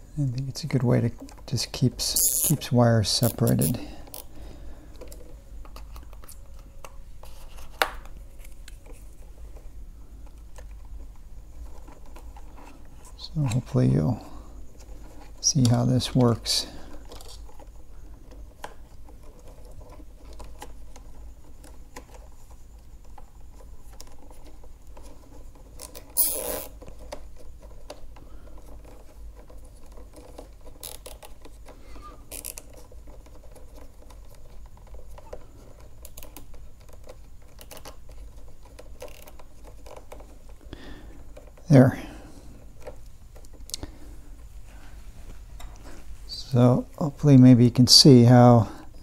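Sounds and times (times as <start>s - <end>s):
cable ties scratching and clicking: 0.2s - 14.1s, 14.7s - 44.5s
plastic rasp: 16.7s - 41.7s.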